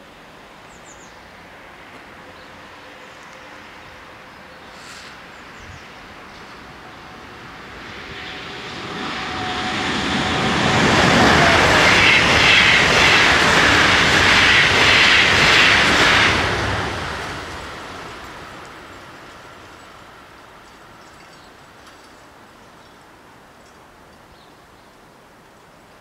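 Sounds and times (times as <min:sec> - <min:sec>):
train passing on rails: 0:00.0 - 0:24.3.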